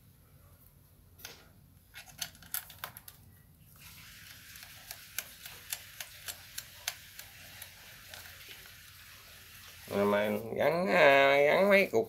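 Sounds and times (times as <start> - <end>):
faint steady hiss: 0.0 - 12.0
evenly spaced light ticks: 4.5 - 8.8.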